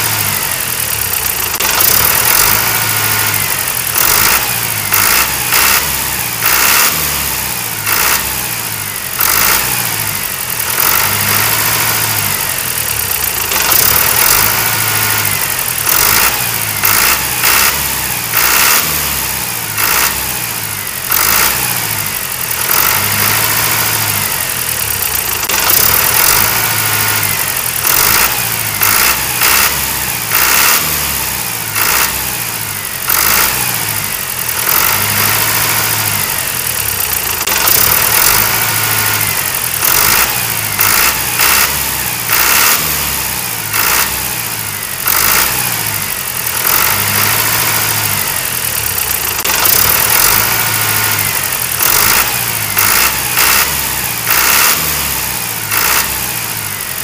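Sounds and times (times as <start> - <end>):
tractor engine revving: 0.0 - 57.0.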